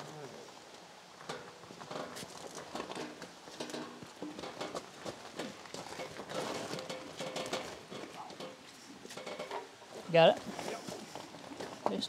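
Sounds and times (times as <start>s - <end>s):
hand truck knocks and clanks: 1.2s - 9.8s.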